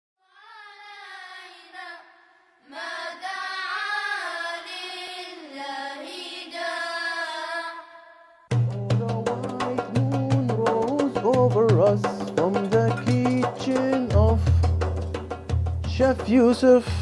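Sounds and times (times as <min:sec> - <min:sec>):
person singing unaccompanied: 0:08.5 - 0:14.9, 0:15.8 - 0:17.0.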